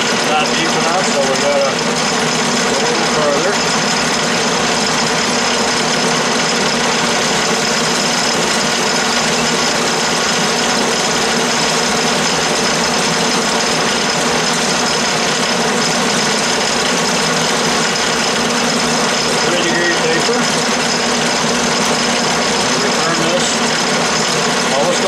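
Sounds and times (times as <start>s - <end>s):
lathe cutting metal with whine: 0.0s - 25.0s.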